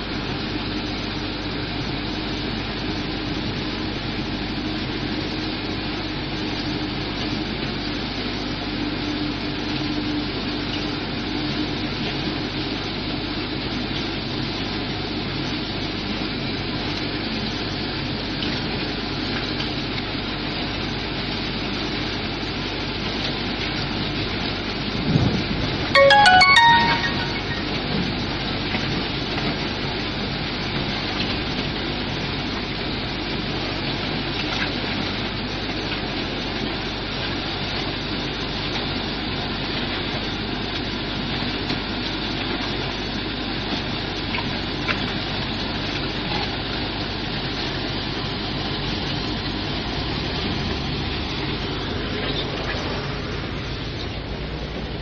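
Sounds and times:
quick high notes: 0:26.0 - 0:27.8.

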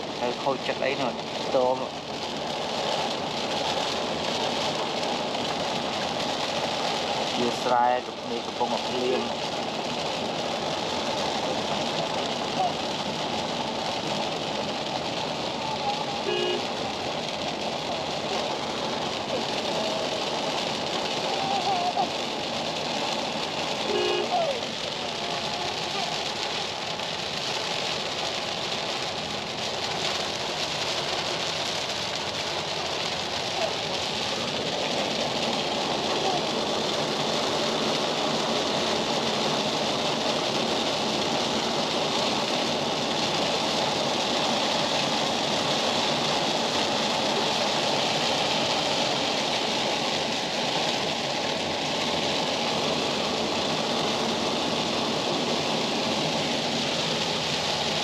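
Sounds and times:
vehicle driving with tyre hiss: 0:00.0 - 0:58.0.

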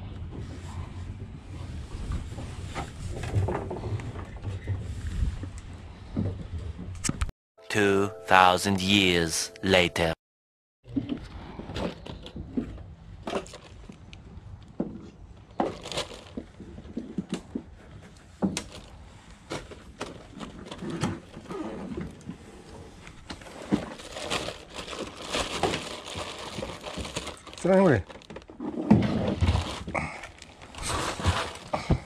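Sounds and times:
plastic bag rustling: 0:15.6 - 0:16.4, 0:23.5 - 0:28.5, 0:29.4 - 0:31.9.

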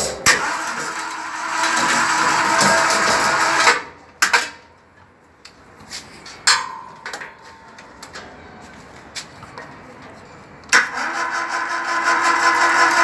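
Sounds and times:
winch motor whirring: 0:00.3 - 0:03.8, 0:10.8 - 0:13.0.

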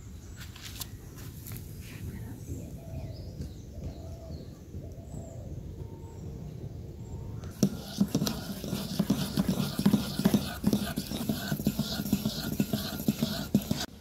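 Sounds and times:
whisk beating batter in metal bowl: 0:07.6 - 0:14.0.

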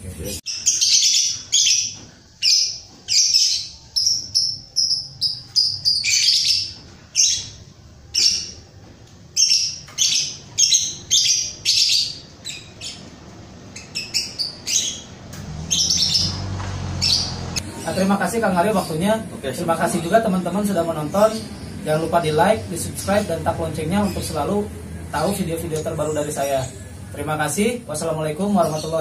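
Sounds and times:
bird shrill chirps: 0:00.5 - 0:08.6, 0:13.7 - 0:17.6.

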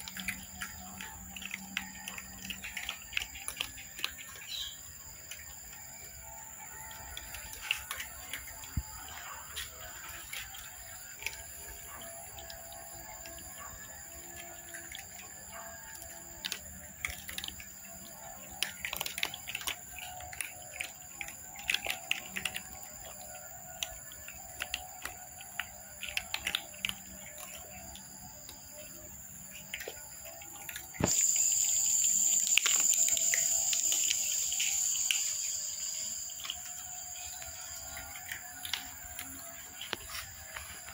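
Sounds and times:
cats crunching dry kibble: 0:00.0 - 0:04.4, 0:06.8 - 0:31.6, 0:36.4 - 0:40.9
steady high-pitched whine: 0:17.7 - 0:40.9.

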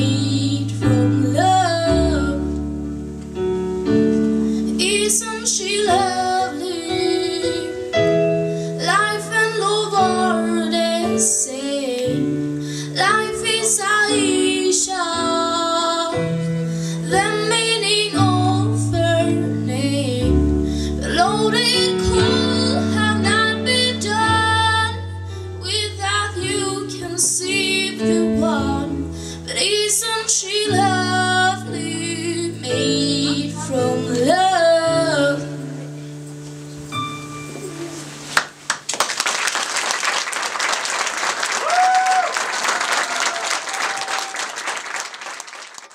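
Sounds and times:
woman singing into a microphone: 0:00.0 - 0:02.7, 0:04.6 - 0:08.0, 0:08.6 - 0:36.0
instrumental backing chords: 0:00.0 - 0:15.0, 0:16.2 - 0:38.8.

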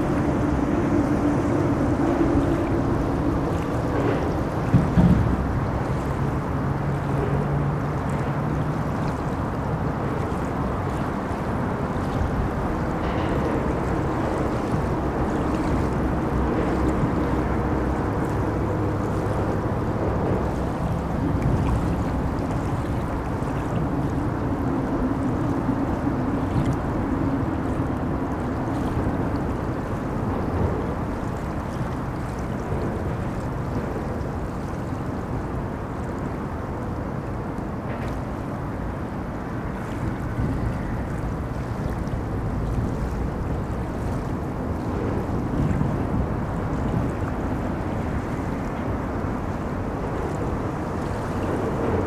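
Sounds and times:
low traffic drone: 0:00.0 - 0:31.4
river water rushing: 0:00.0 - 0:52.0.

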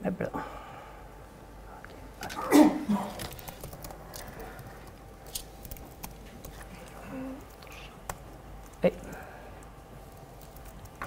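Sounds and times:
laptop keyboard typing: 0:03.1 - 0:11.0.

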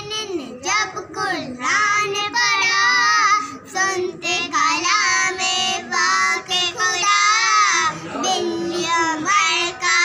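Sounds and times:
girls singing: 0:00.7 - 0:10.0.

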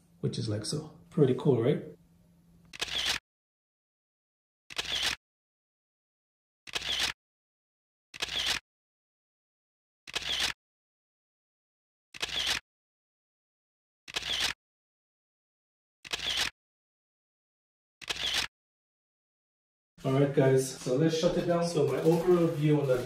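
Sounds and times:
camera shutter click and whir: 0:02.7 - 0:03.2, 0:04.7 - 0:05.2, 0:06.7 - 0:07.2, 0:08.2 - 0:08.6, 0:10.1 - 0:10.6, 0:12.2 - 0:12.6, 0:14.1 - 0:14.6, 0:16.0 - 0:16.5, 0:18.0 - 0:18.5.

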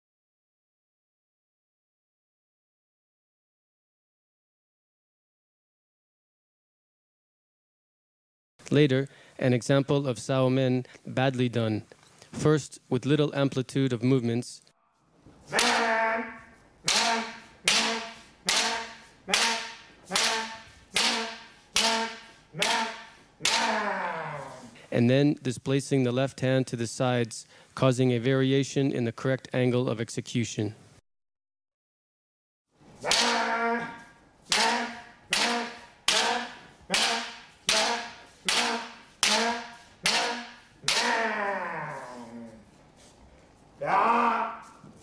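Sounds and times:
sharp sword strikes: 0:15.5 - 0:16.0, 0:16.9 - 0:23.8, 0:33.0 - 0:33.6, 0:34.5 - 0:41.4
person shouting: 0:15.5 - 0:24.7, 0:33.0 - 0:42.6, 0:43.8 - 0:44.8.

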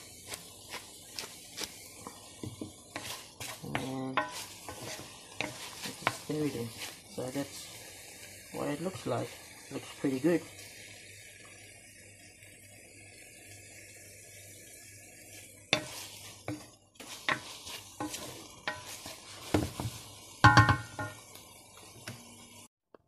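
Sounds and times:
wooden spoon scraping a pan: 0:00.0 - 0:08.0, 0:15.3 - 0:22.6
food sizzling in a frying pan: 0:00.0 - 0:22.7
spoon knocking against pan: 0:03.7 - 0:06.2, 0:17.2 - 0:21.2.

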